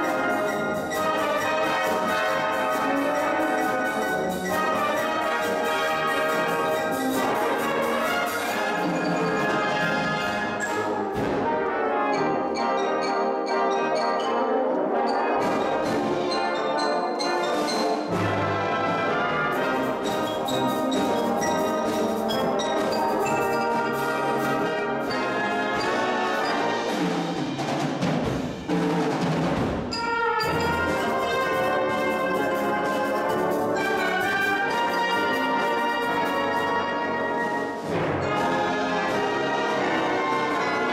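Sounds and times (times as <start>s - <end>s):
brass band playing: 0.0s - 40.9s
drum strokes: 18.1s - 36.6s.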